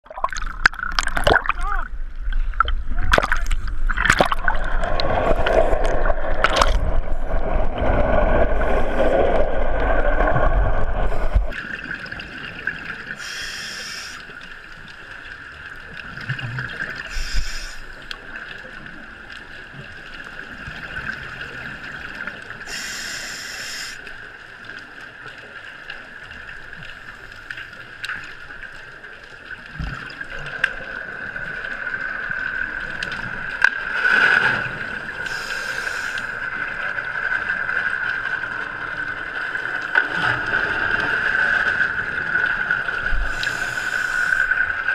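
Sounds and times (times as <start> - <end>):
diver exhaust bubbles hissing: 13.2 - 14.3, 17.0 - 17.9, 22.6 - 24.0, 35.2 - 36.4, 43.2 - 44.6
muffled underwater hush: 16.2 - 17.9.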